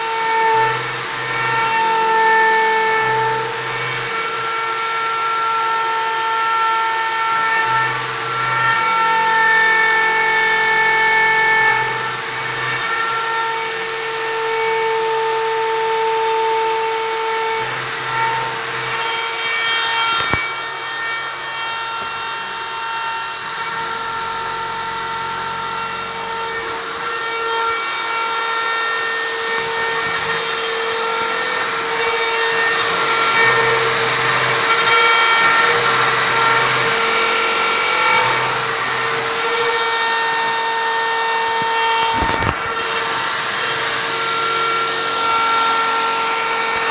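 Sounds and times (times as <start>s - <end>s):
router spindle whining: 0.0s - 46.9s.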